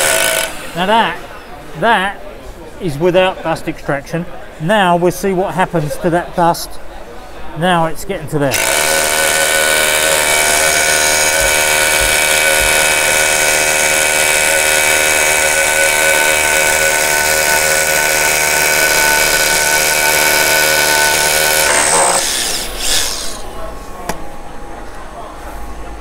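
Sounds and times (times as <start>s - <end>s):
rotary hammer drilling concrete: 0.0s - 0.8s, 8.5s - 23.5s.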